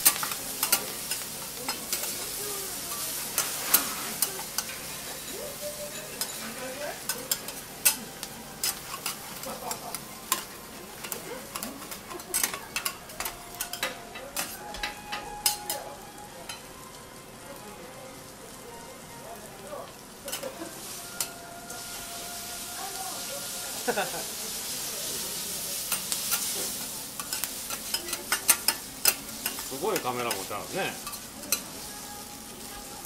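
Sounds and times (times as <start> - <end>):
metal spatulas scraping a griddle: 0.0 - 15.8, 23.9 - 31.8
food sizzling on a griddle: 0.0 - 33.0.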